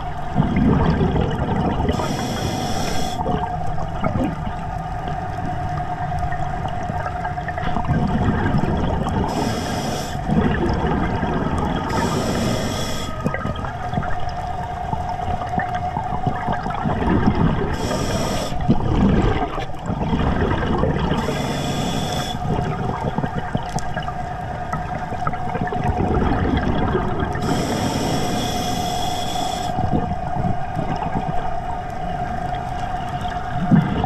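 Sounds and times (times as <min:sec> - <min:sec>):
bubbling exhaled air: 0:00.0 - 0:04.8, 0:06.7 - 0:31.7, 0:32.3 - 0:34.0
regulator hiss on inhale: 0:01.9 - 0:03.3, 0:09.2 - 0:10.3, 0:11.8 - 0:13.4, 0:17.7 - 0:18.8, 0:21.2 - 0:22.7, 0:27.4 - 0:30.3
steady whine: 0:21.1 - 0:22.6.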